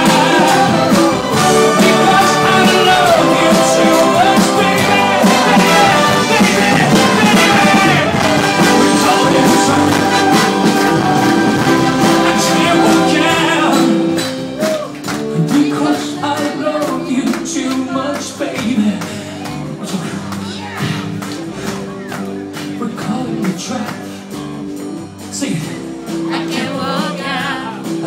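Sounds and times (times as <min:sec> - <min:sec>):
man singing: 0:00.0 - 0:14.2, 0:15.3 - 0:20.7
big band playing pop song: 0:00.0 - 0:28.0.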